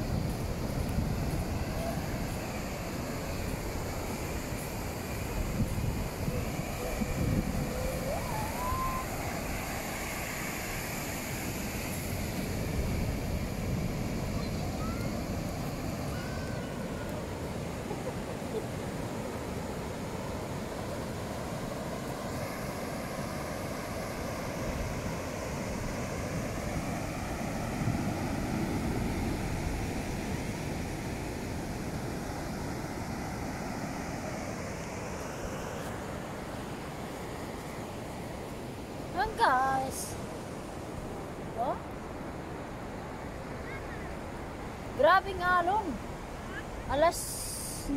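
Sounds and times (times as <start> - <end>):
wind buffeting microphone: 0.0 - 17.8
ocean waves breaking: 0.0 - 47.9.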